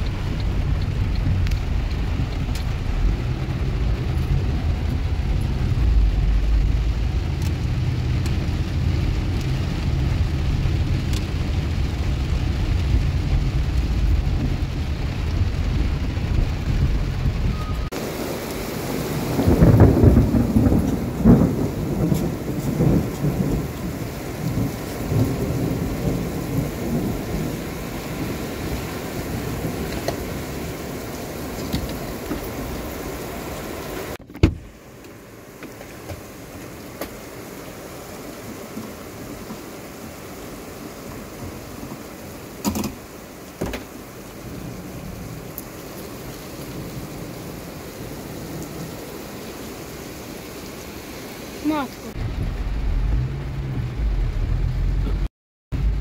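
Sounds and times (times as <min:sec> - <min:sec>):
thunder rumbling: 0:00.0 - 0:34.2, 0:51.6 - 0:56.0
heavy rain: 0:00.0 - 0:56.0.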